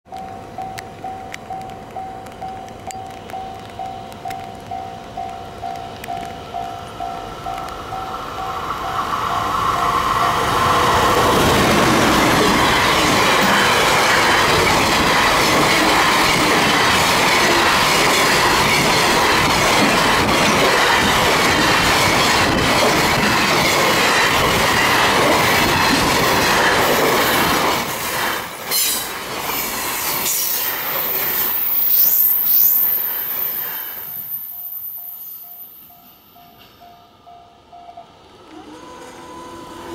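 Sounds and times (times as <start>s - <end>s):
freight train rolling: 0.1s - 39.9s
high wheel squeal: 30.2s - 36.2s.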